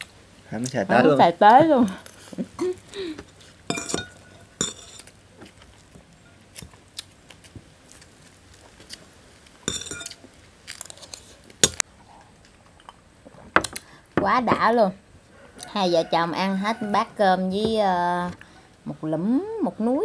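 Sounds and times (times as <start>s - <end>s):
dishes and utensils clinking: 3.7s - 5.1s, 9.7s - 10.2s
chewing and crunching crab shell: 5.0s - 9.1s, 10.1s - 11.6s.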